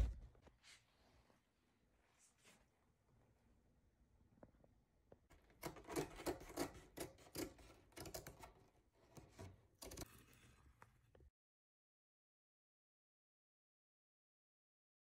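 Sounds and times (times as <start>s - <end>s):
scissors cutting cloth: 5.4s - 10.5s.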